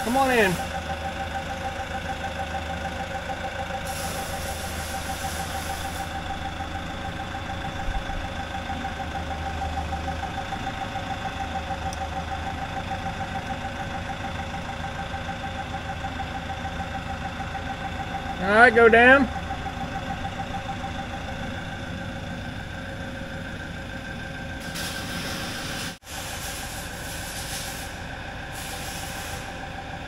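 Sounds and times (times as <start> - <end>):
forklift engine idling: 0.0 - 30.0.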